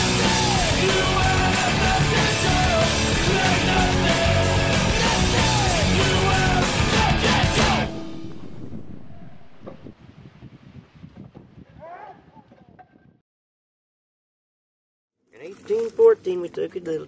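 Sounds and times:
loud rock music with singing: 0.0 - 8.2.

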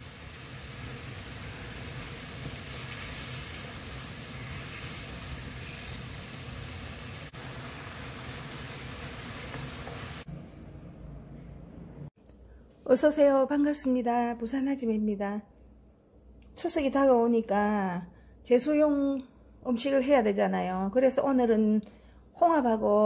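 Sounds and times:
beef sizzling in a frying pan: 0.0 - 10.3.

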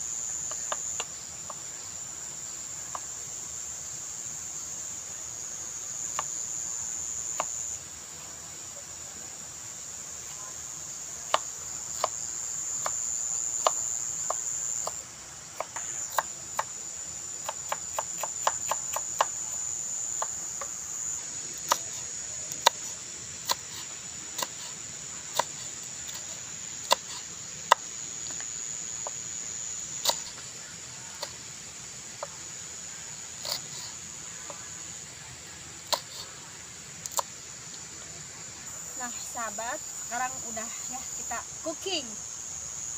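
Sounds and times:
insects shrilling: 0.0 - 42.9.

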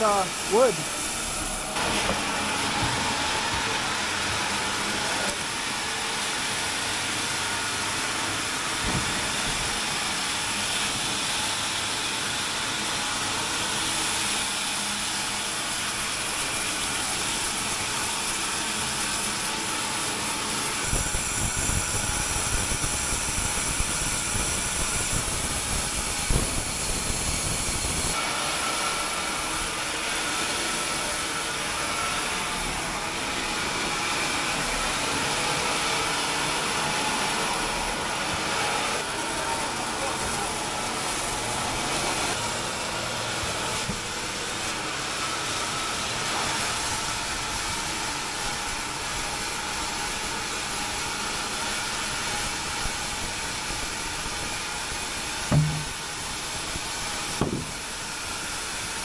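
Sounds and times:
sawmill machinery whirring: 0.0 - 59.0
machinery knocks: 55.5 - 56.0, 57.4 - 57.8.

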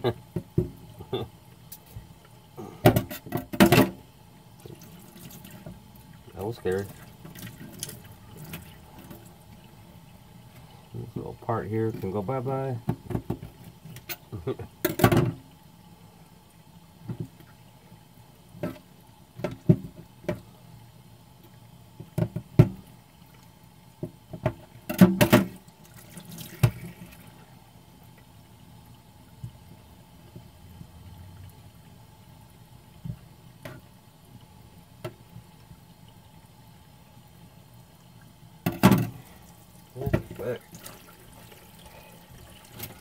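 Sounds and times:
knocks and clatter in sink: 2.8 - 4.0, 12.8 - 13.6, 14.8 - 15.4, 19.4 - 20.4, 24.0 - 25.6, 38.6 - 39.2, 40.0 - 40.5.

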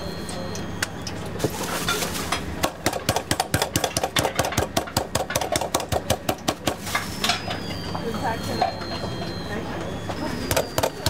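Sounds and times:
meat mallet pounding cutlet: 2.6 - 6.8.

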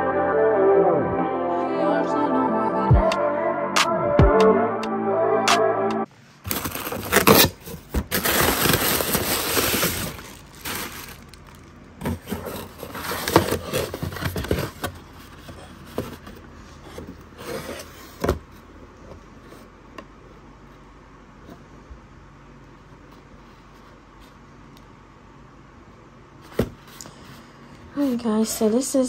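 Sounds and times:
music: 0.0 - 6.1
cardboard and paper rustling: 6.4 - 18.6.

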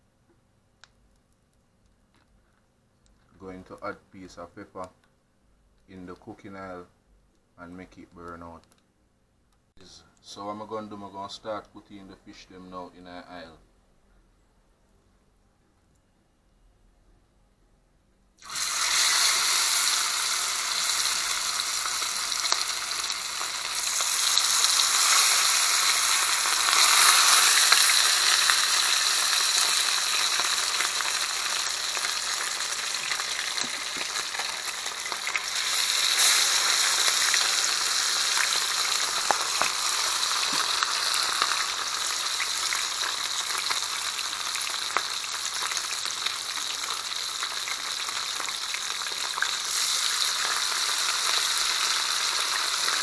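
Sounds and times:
fish frying in oil: 18.4 - 53.0.

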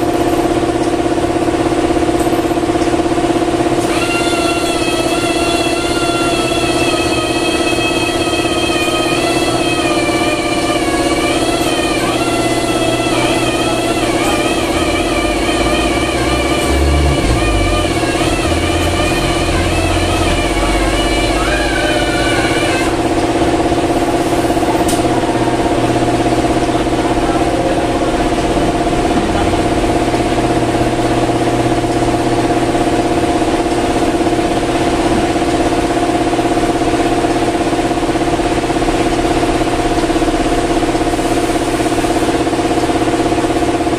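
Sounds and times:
steady mechanical hum: 0.0 - 43.9
wavering pitched sound: 3.9 - 33.2.

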